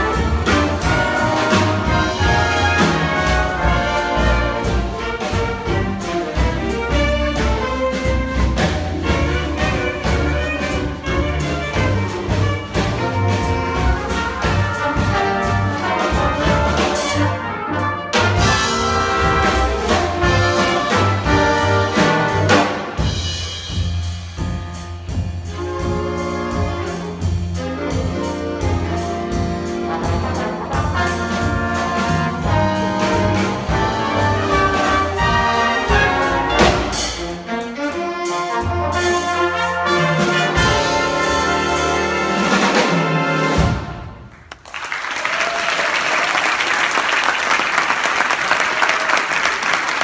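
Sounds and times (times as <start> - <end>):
concert band playing: 0.0 - 50.0
audience applauding: 44.3 - 50.0.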